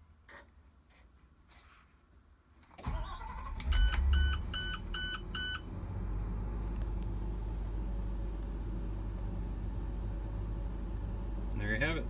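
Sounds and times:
bus engine starting and idling: 2.7s - 12.0s
dashboard warning chime beeps: 3.7s - 5.7s.

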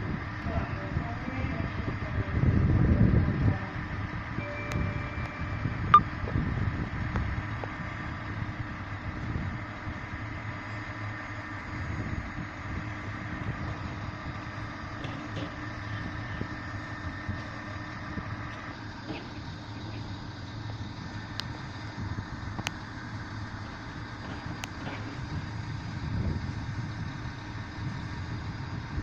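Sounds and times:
diesel engine idling: 0.0s - 29.0s
high whine: 4.4s - 6.5s.

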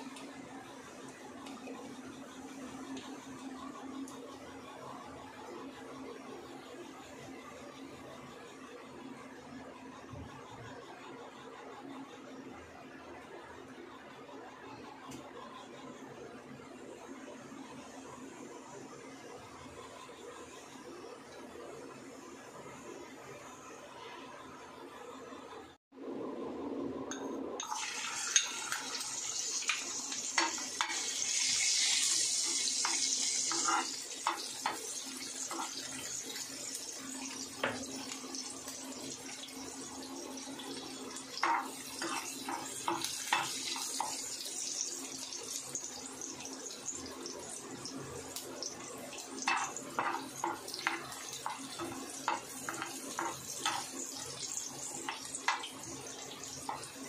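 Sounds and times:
oil sizzling in frying pan: 27.6s - 57.0s
spatula tapping and scraping pan: 32.0s - 35.9s, 41.4s - 44.2s, 49.4s - 55.8s.

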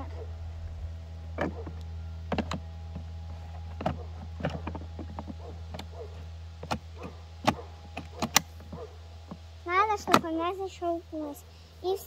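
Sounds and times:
steady low hum: 0.0s - 12.0s
hard plastic clicks and knocks: 1.4s - 3.1s.

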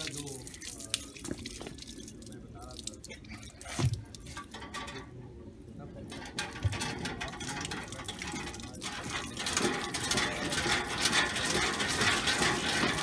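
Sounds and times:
water splashing on concrete: 0.0s - 4.6s, 6.1s - 13.0s
hand pump clanking: 3.8s - 5.2s, 6.0s - 13.0s.

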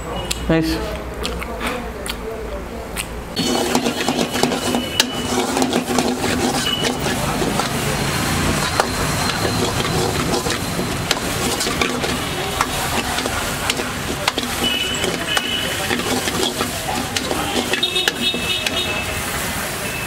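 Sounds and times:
metal ladle scraping wok: 3.4s - 19.3s
frying sizzle: 3.4s - 20.0s.

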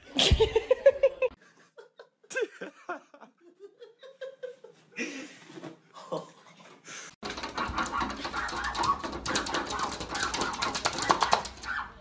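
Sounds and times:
person laughing hard: 0.1s - 5.3s.

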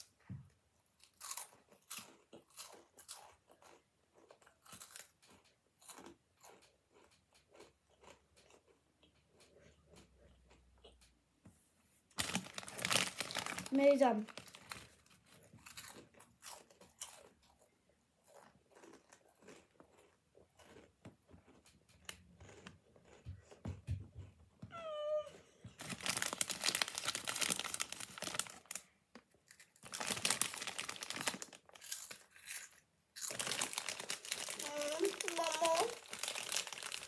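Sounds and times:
crunching and chewing snacks: 0.0s - 11.2s, 12.1s - 24.4s, 25.1s - 37.0s
snack bag crinkling: 12.1s - 17.6s, 25.8s - 37.0s.

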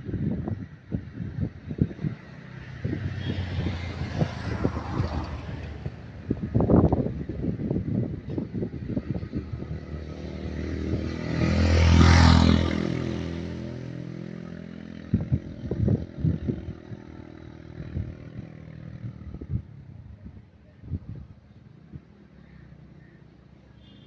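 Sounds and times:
motor vehicle passing: 2.0s - 20.0s.

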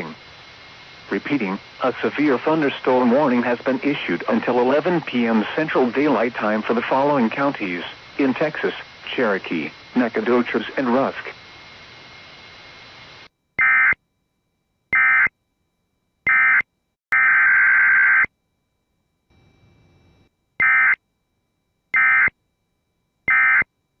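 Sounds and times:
spoken warning: 1.1s - 11.4s.

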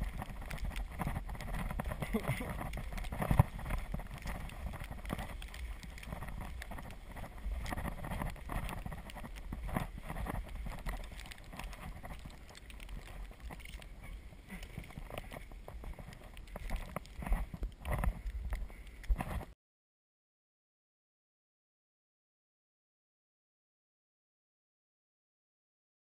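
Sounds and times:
tyres crunching through snow: 0.0s - 19.5s.

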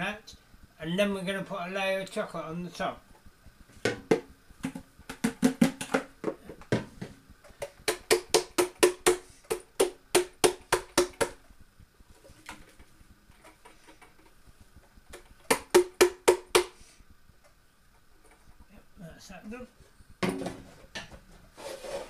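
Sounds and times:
plastic jug knocking: 3.8s - 9.2s, 20.2s - 21.1s.

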